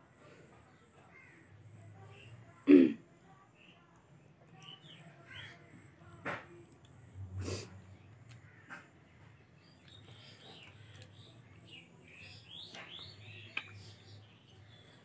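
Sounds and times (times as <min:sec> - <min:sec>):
small bird chirping: 0:09.2 - 0:15.0.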